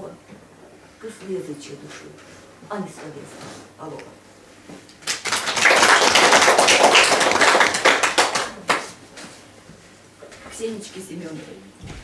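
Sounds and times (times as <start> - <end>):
small audience applauding: 5.0 - 9.0.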